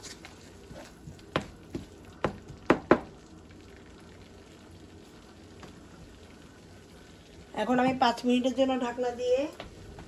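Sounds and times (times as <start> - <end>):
wooden spatula knocking on pan: 1.3 - 3.1.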